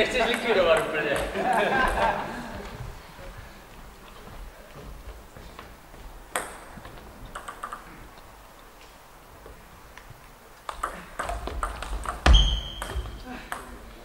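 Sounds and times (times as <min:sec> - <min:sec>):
table tennis ball clicking: 0:06.3 - 0:08.2, 0:10.6 - 0:13.8.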